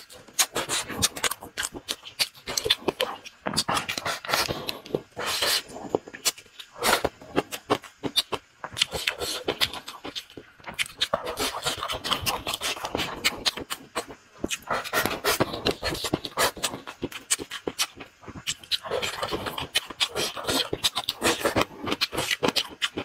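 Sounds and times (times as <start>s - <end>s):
open-mouth chewing: 0.0s - 23.0s
man slurping food: 3.6s - 6.0s.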